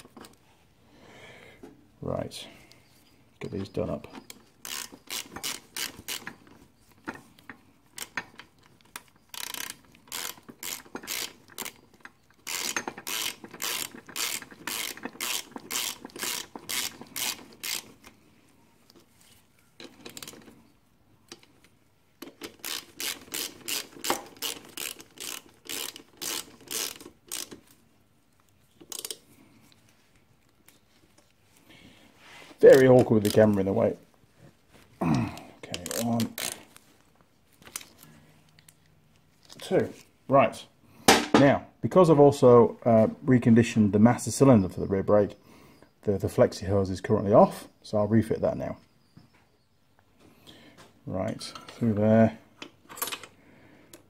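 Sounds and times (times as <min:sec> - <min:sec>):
socket ratchet clicking: 0:04.3 - 0:06.4, 0:07.4 - 0:18.2, 0:22.2 - 0:27.7.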